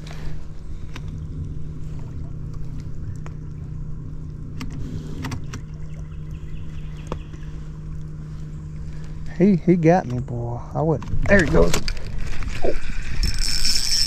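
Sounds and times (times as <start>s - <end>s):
small motor humming: 0.0s - 10.0s, 11.1s - 14.0s.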